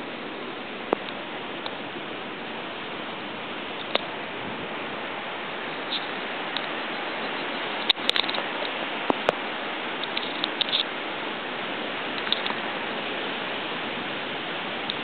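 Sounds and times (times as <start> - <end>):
ocean surf on rocky shore: 0.0 - 15.0
small ticks: 3.8 - 4.1, 10.0 - 10.9, 12.2 - 12.6.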